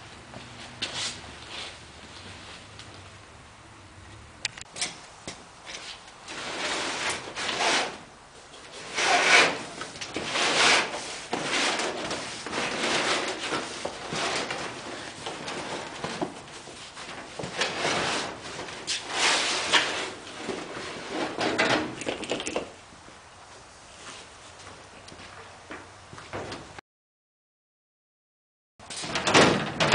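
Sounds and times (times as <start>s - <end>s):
rubber bladder scraping against metal: 5.7s - 22.0s.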